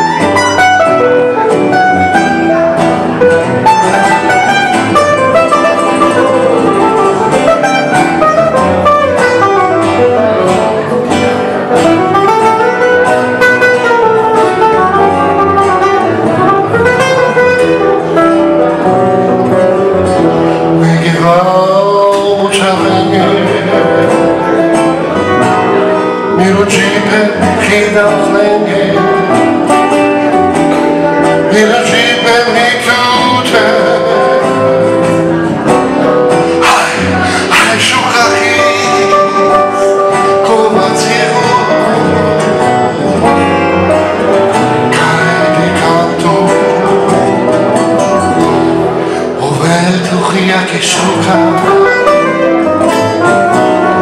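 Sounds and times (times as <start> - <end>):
acoustic guitars: 0.0 - 54.0
plucked double bass: 0.0 - 54.0
man singing: 19.5 - 54.0.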